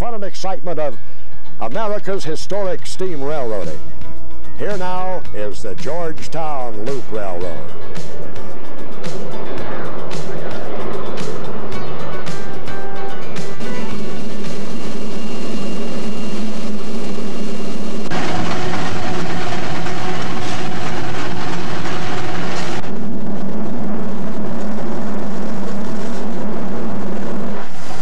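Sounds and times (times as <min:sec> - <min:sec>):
low steady hum: 0:06.7 - 0:28.0
steam hissing: 0:13.8 - 0:22.8.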